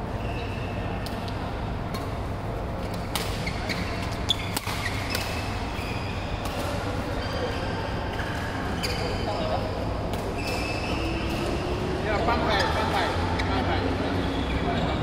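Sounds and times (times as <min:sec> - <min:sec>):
short high squeaks: 0:10.4 - 0:11.3.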